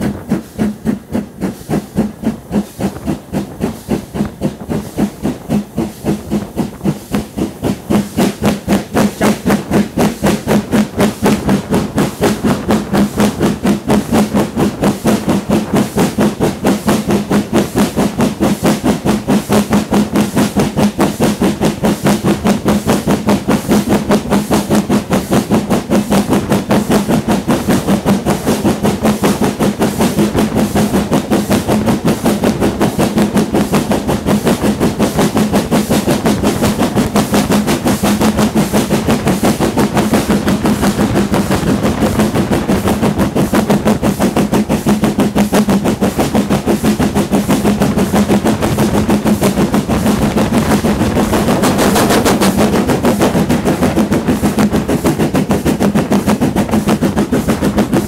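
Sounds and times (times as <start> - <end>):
steam locomotive exhaust beats: 0.0 - 58.0
steady hum: 30.3 - 58.0.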